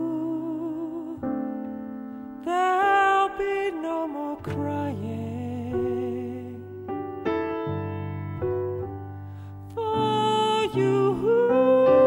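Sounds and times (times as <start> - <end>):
piano chords: 0.0 - 12.0
person singing long notes: 9.7 - 12.0.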